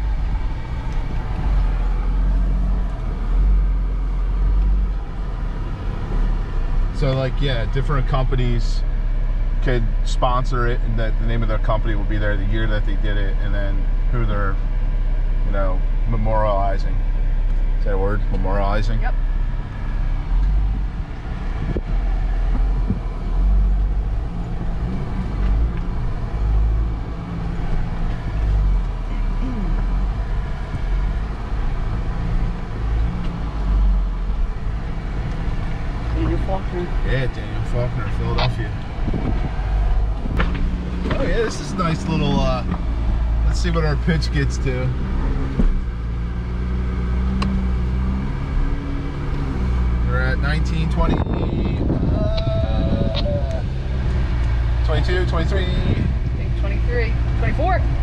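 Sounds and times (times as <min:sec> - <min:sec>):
engine deep rumble: 0:00.0 - 0:58.0.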